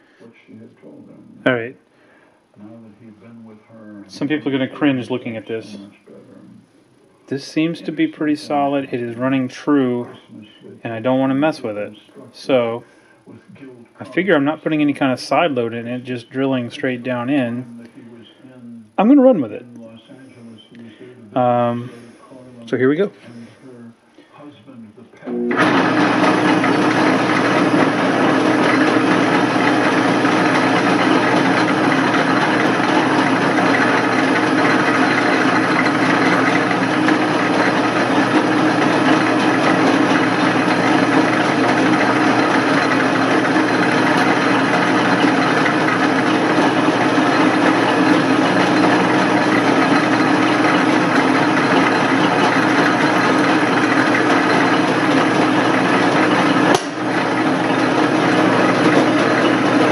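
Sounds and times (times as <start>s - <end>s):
metal lathe drilling metal: 25.5s - 59.9s.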